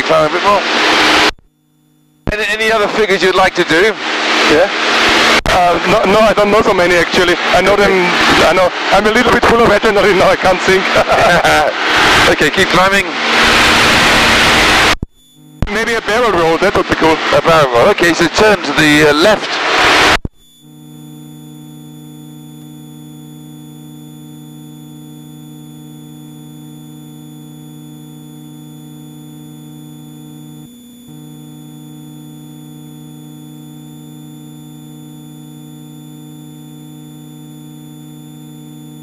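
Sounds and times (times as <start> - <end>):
airplane engine and propeller drone: 2.3 - 14.8.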